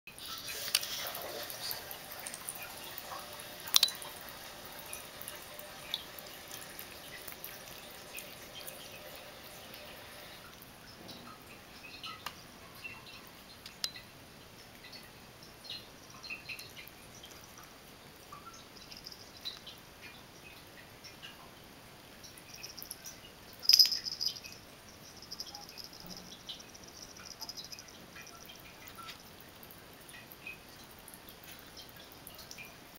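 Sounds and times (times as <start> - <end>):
water running from faucet: 0.1 - 12.0, 16.0 - 21.3, 22.2 - 32.9
kitten lapping water: 0.3 - 11.8.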